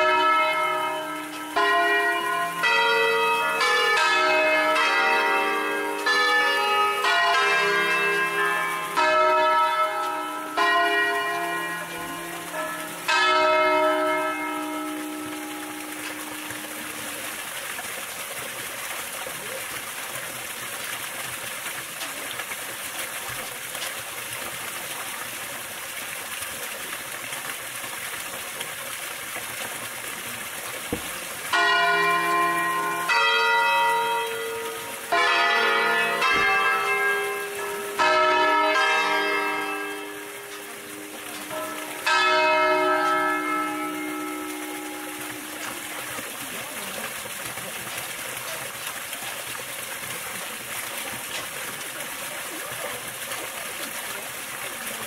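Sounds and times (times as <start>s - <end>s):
bronze bells ringing: 0.0s - 17.4s, 31.1s - 46.8s
running water: 0.0s - 55.0s.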